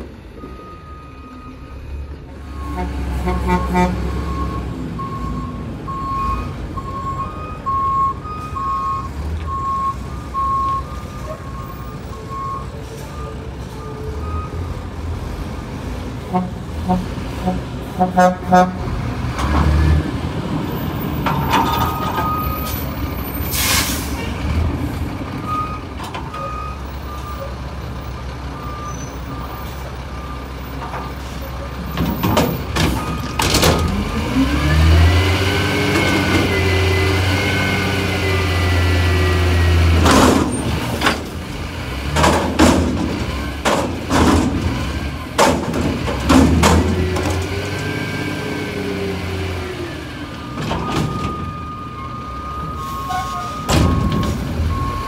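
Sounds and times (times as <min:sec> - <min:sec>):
diesel garbage truck engine: 0:00.0 - 0:55.0
air brake hisses: 0:23.4 - 0:24.2.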